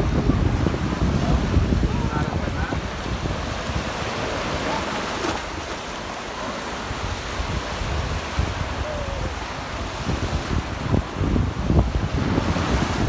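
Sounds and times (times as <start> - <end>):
sea surf washing onto beach: 0.0 - 13.0
wind buffeting microphone: 0.0 - 13.0.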